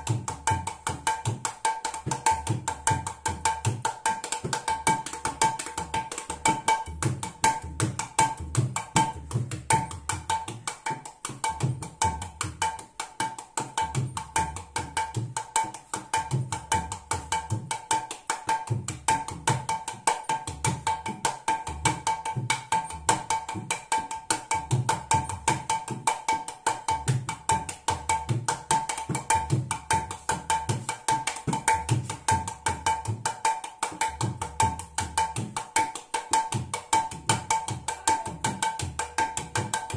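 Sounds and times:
hand drum treble strokes: 0:29.1 - 0:33.2.

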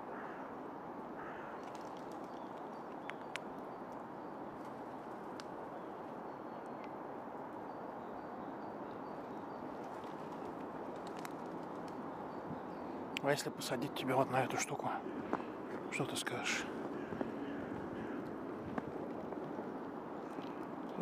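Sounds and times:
steady background hiss: 0:00.0 - 0:21.0
faint clicks: 0:01.6 - 0:04.0, 0:10.0 - 0:12.0.

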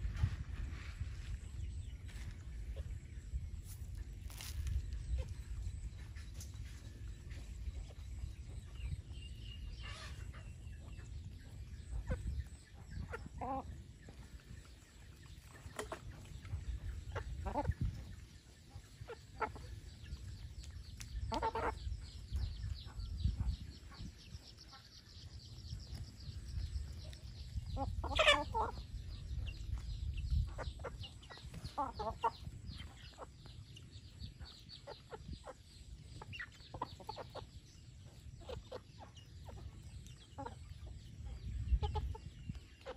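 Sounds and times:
chickens clucking: 0:00.0 - 0:42.9.

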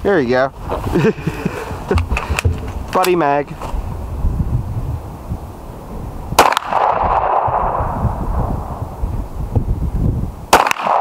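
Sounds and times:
pistol shots: 0:06.4 - 0:07.8, 0:10.5 - 0:11.0.

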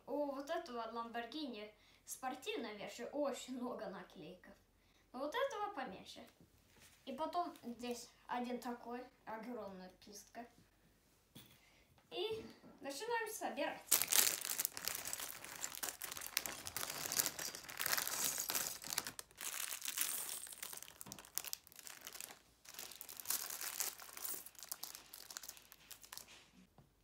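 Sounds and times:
plastic bags tearing and crinkling: 0:13.9 - 0:26.6.

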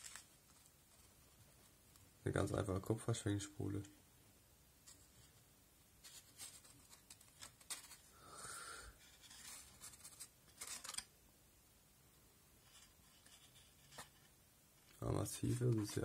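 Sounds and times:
paper cone rubbing and scraping: 0:09.0 - 0:11.0, 0:12.6 - 0:14.3, 0:14.9 - 0:16.0.

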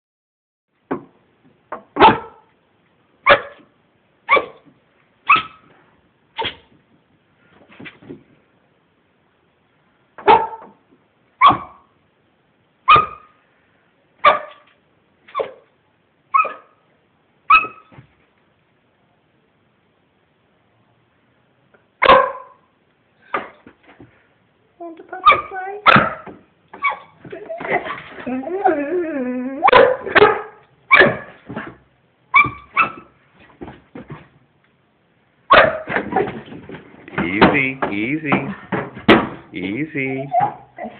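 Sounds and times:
dog barking: 0:02.0 - 0:02.5, 0:03.2 - 0:03.7, 0:04.3 - 0:04.6, 0:05.3 - 0:05.6, 0:10.2 - 0:10.8, 0:11.4 - 0:11.9, 0:12.9 - 0:13.4, 0:14.2 - 0:14.7, 0:16.3 - 0:16.8, 0:22.0 - 0:22.6, 0:25.2 - 0:27.1, 0:29.6 - 0:31.4, 0:35.5 - 0:35.9.

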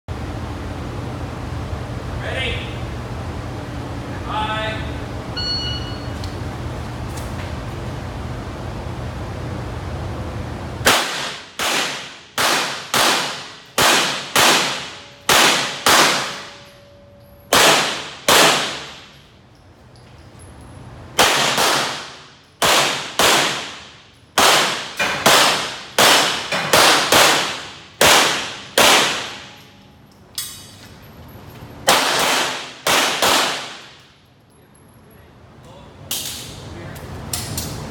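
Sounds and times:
handgun shots echoing indoors: 0:10.8 - 0:19.3, 0:21.1 - 0:30.7, 0:31.8 - 0:34.3, 0:36.1 - 0:36.6.

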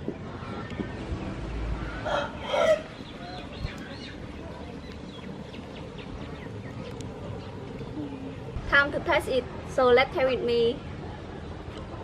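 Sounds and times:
outdoor background noise: 0:00.0 - 0:12.0
chicken calling: 0:01.8 - 0:04.1.

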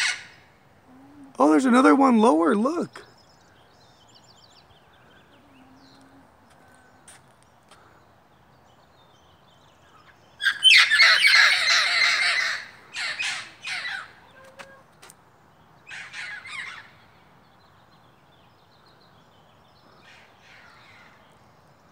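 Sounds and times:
parrots squawking: 0:00.0 - 0:00.4, 0:10.4 - 0:14.6, 0:15.9 - 0:16.9.

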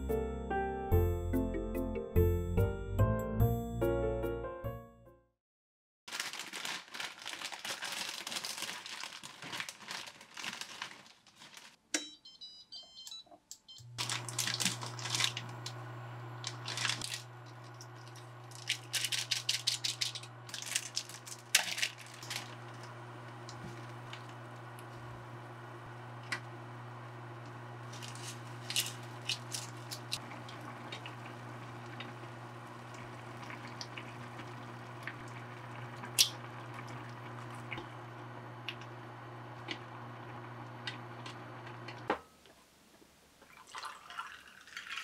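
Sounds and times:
plastic packet crinkling: 0:06.1 - 0:11.8, 0:14.0 - 0:15.8, 0:16.4 - 0:24.8, 0:27.8 - 0:35.2
short electronic beeps: 0:12.0 - 0:13.9
induction cooktop hum: 0:13.6 - 0:43.4.

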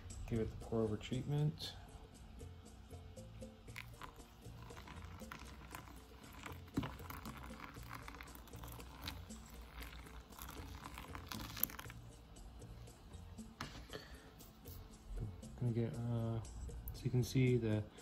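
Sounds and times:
water splashing on coffee grounds: 0:03.7 - 0:12.0.

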